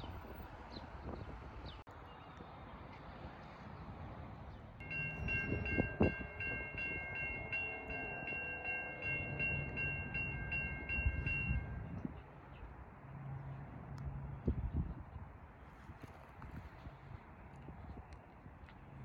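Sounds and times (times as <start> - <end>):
railroad bell ringing: 4.8 - 12.0.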